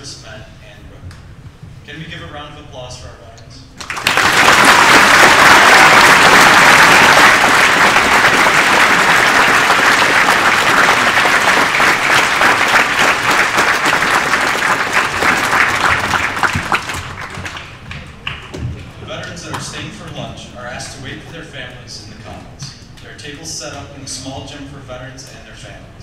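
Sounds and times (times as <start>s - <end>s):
crowd applauding: 3.8s - 18.9s.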